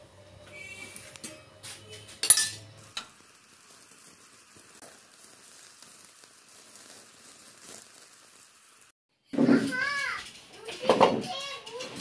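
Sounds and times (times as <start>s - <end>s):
flatbread hissing on pan: 2.9s - 9.0s.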